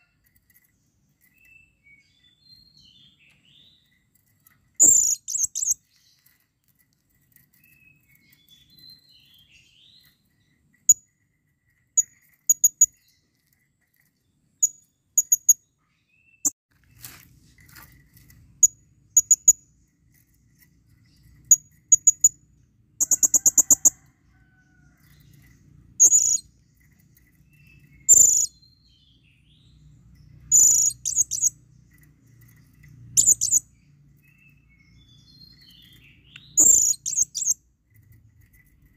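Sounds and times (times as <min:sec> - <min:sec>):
parrot high-pitched chirps: 0:23.0 - 0:23.9, 0:28.1 - 0:28.5, 0:30.5 - 0:31.5, 0:33.2 - 0:33.6, 0:36.6 - 0:37.6.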